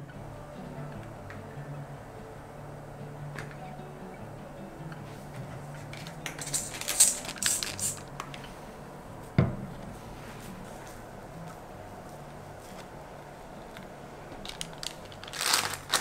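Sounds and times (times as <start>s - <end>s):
crackly rustling of moss: 14.4s - 16.0s.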